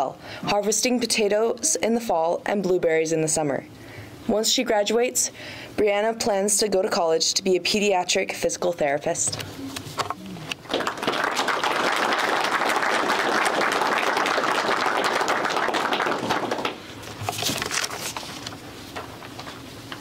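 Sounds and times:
audience applauding: 10.6s - 16.9s.

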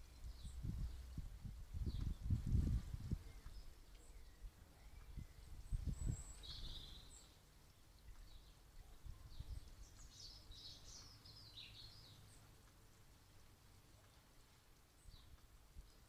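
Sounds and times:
wind rumbling on microphone: 0.0s - 7.3s, 8.1s - 12.1s.

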